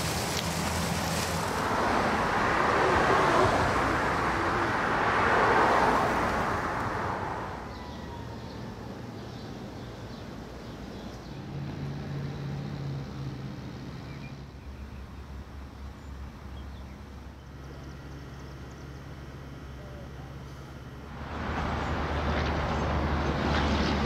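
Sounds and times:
engines idling: 0.0 - 24.0
road traffic hum: 0.0 - 24.0.

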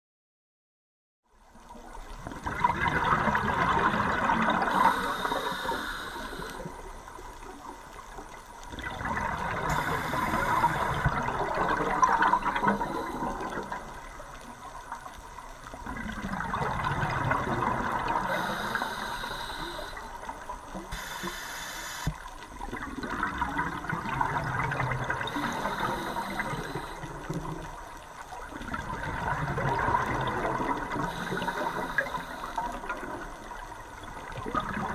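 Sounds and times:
exhaled bubbles rushing: 2.2 - 5.4, 8.7 - 15.0, 15.6 - 19.0, 22.5 - 34.9
diver inhaling through regulator: 4.6 - 6.8, 9.7 - 11.1, 12.2 - 13.7, 18.2 - 20.2, 20.9 - 22.2, 25.3 - 27.2, 31.0 - 32.8.

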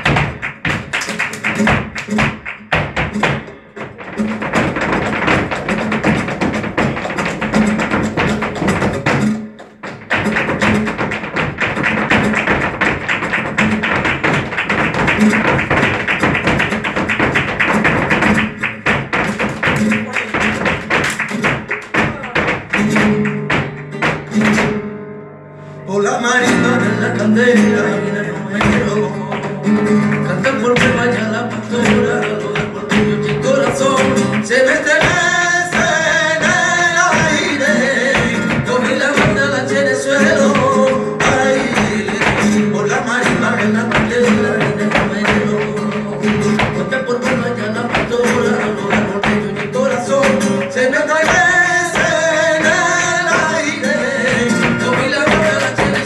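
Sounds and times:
hand claps: 0.0 - 24.8, 28.6 - 56.0
flamenco guitar: 0.0 - 56.0
person singing: 25.8 - 56.0.

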